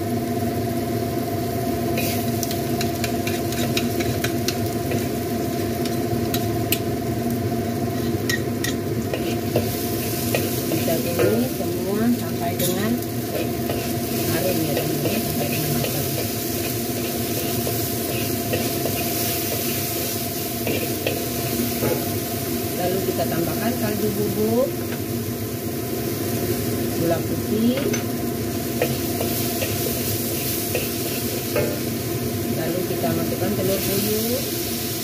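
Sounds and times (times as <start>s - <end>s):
spice paste sizzling in a wok: 0.0s - 35.0s
metal spatula scraping wok: 2.0s - 6.0s, 7.9s - 11.6s, 12.6s - 22.1s, 28.8s - 32.0s.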